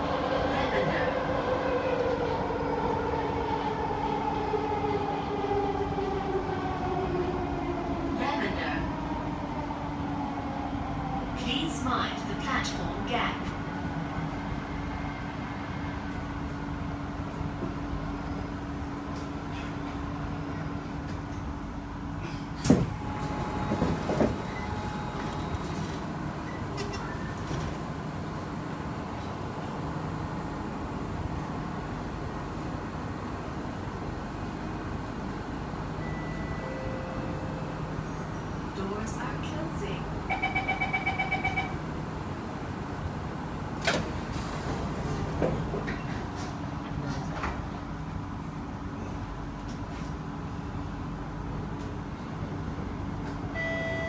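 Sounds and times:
train running rumble: 0:00.0 - 0:36.0, 0:36.6 - 0:53.6
train doors clunking open: 0:22.2 - 0:28.3, 0:43.7 - 0:47.8.

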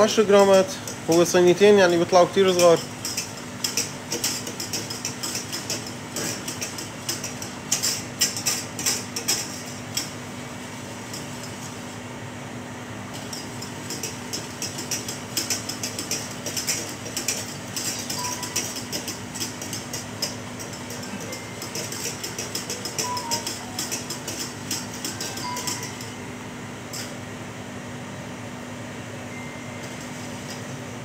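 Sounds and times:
whisk clinking in metal saucepan: 0:00.0 - 0:10.2, 0:13.2 - 0:26.2.

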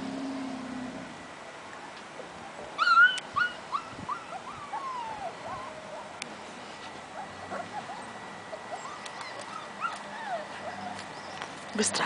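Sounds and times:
puppy yelp: 0:02.4 - 0:06.1, 0:07.2 - 0:11.4
puppies whimpering and yipping: 0:02.4 - 0:06.2, 0:07.1 - 0:11.6.

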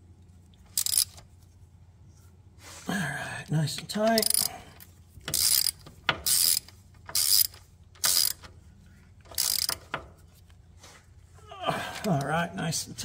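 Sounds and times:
ratchet wrench clicking: 0:00.7 - 0:01.2, 0:04.1 - 0:04.5, 0:05.3 - 0:08.5, 0:09.2 - 0:10.1.

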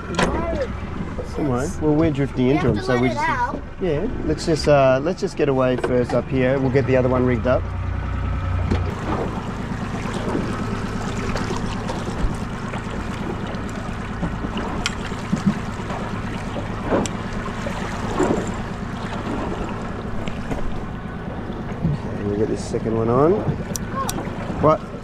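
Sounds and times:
boat engine drone: 0:00.0 - 0:25.0
water sounds: 0:00.0 - 0:25.0.

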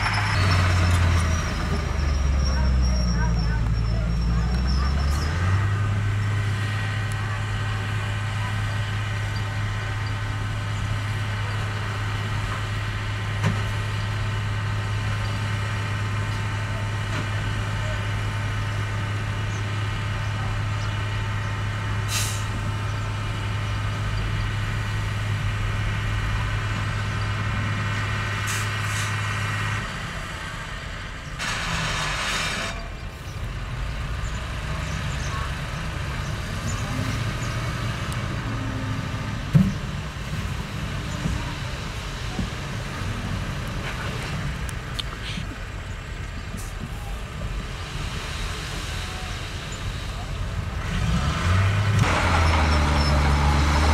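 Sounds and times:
heavy diesel machinery humming: 0:00.0 - 0:53.9
air brake hiss: 0:22.1 - 0:22.6.

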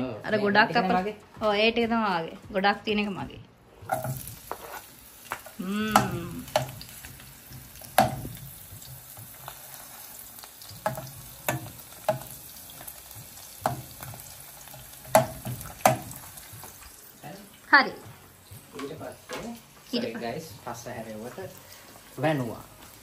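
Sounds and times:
metal spoon scraping a pan: 0:03.8 - 0:05.6
onions sizzling in oil: 0:03.8 - 0:23.0.

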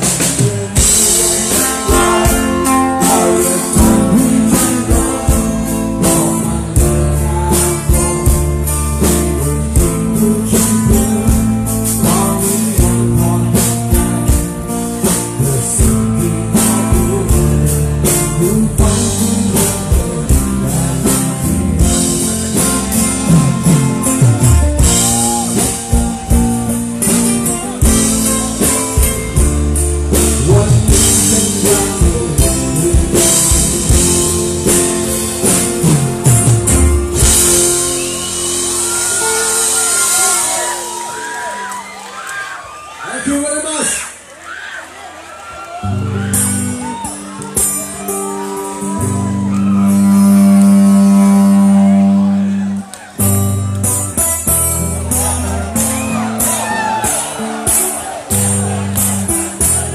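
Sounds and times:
lead vocal singing: 0:00.0 - 0:29.1, 0:30.1 - 0:36.2
drum kit: 0:00.0 - 0:41.7, 0:46.2 - 0:59.9
electric guitar: 0:00.0 - 0:42.4, 0:45.8 - 0:59.9.

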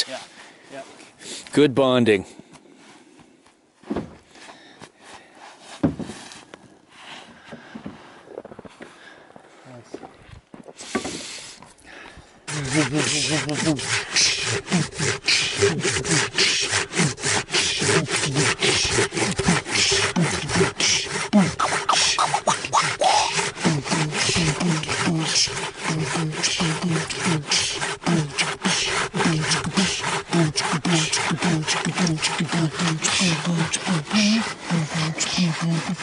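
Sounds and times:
saw cutting through wood: 0:12.4 - 0:36.0.

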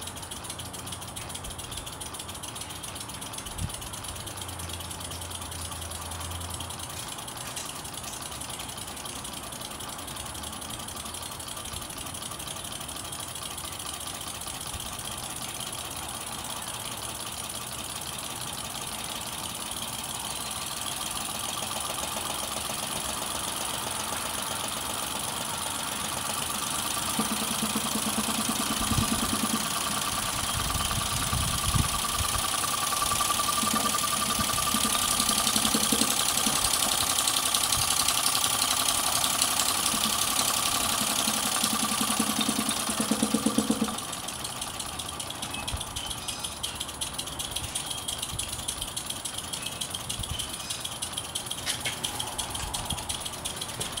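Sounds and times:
model steam engine clattering: 0:00.0 - 0:54.0
steady engine whine: 0:00.0 - 0:54.0.

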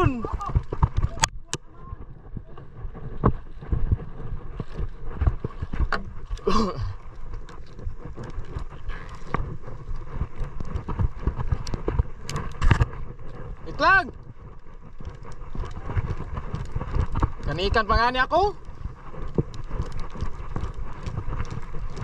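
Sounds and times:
water noise: 0:00.0 - 0:22.0
wind: 0:00.0 - 0:22.0
knocks and thumps on hull: 0:00.2 - 0:14.1.

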